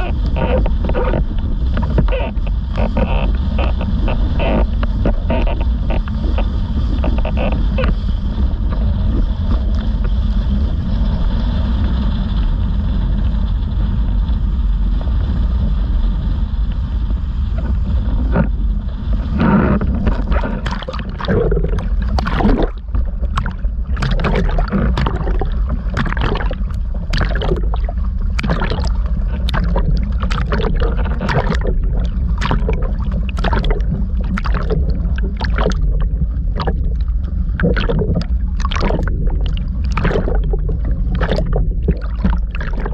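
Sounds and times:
waves splashing and gurgling: 0:00.0 - 0:14.1, 0:14.7 - 0:42.9
water rushing past board: 0:17.6 - 0:42.9.

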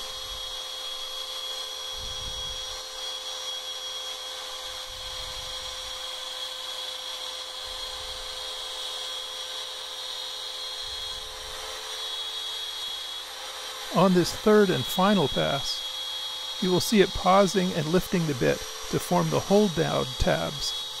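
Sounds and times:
cnc router spindle whining: 0:00.0 - 0:21.0
vacuum hose sucking sawdust: 0:10.6 - 0:21.0.

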